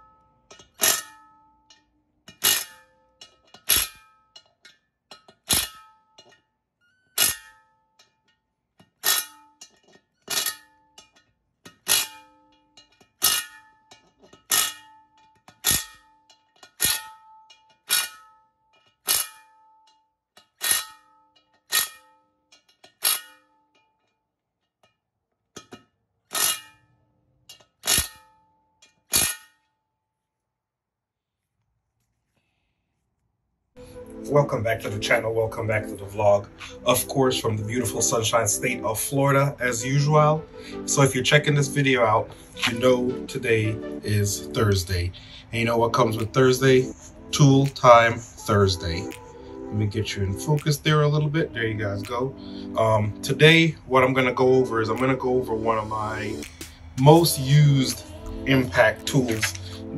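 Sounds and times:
impact wrench hitting bolts: 0.0s - 29.8s
metal wheel ringing: 0.0s - 29.8s.

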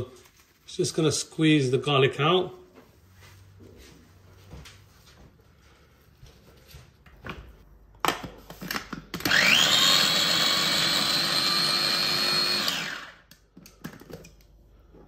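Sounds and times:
food chopper motor whining: 9.1s - 13.4s.

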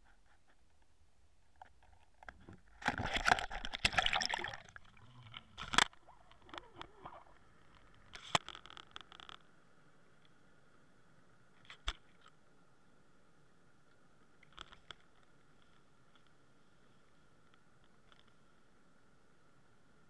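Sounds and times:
underwater knocks and clicks: 1.6s - 4.6s
water splashing and gurgling: 2.8s - 8.0s.

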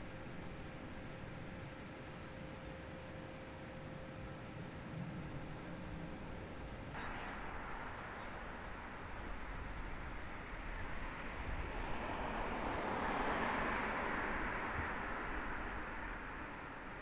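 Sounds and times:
vehicle passing by: 8.2s - 16.8s.

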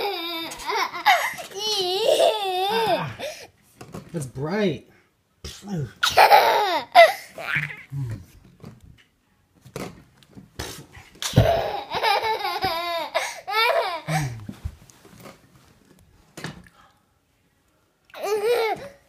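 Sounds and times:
toddler laughing: 0.0s - 3.2s, 6.0s - 7.9s, 11.2s - 14.4s, 18.2s - 19.0s.

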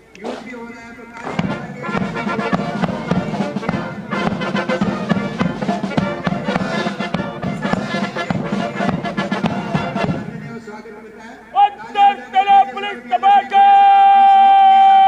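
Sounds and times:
drum beats: 0.2s - 10.6s
brass band playing: 0.2s - 10.7s.

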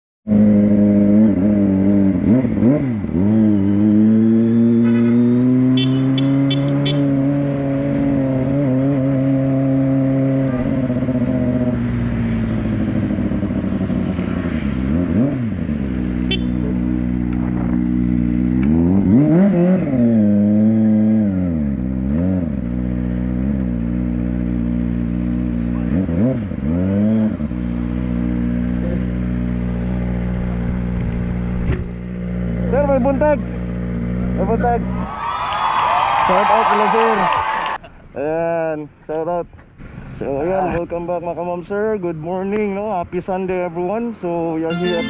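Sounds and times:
motorcycle engine revving: 0.3s - 34.6s.

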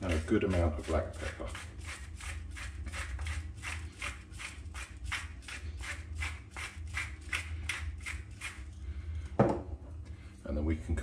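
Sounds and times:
pepper mill grinding: 0.0s - 8.7s.

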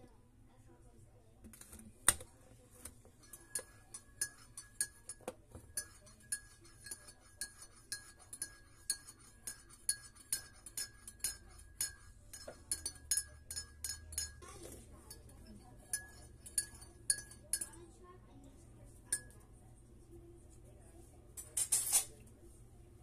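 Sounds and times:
spoon clinking against ceramic mug: 3.2s - 17.8s, 19.1s - 19.4s.

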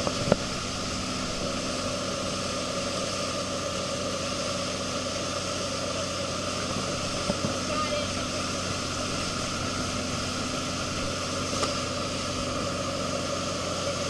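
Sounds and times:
boat engine humming: 0.0s - 14.0s
churning wake water: 0.0s - 14.0s.

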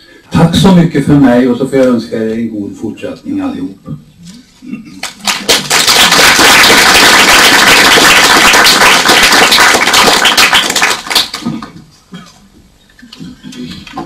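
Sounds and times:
crowd applauding: 5.0s - 11.7s.

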